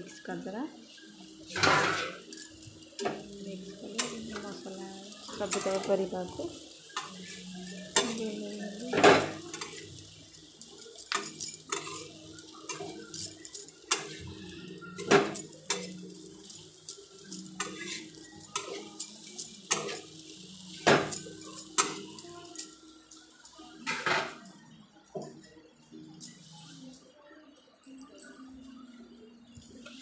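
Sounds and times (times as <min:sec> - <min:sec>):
metal utensil scraping metal pan: 0:01.5 - 0:02.3, 0:03.0 - 0:14.3, 0:17.0 - 0:20.1.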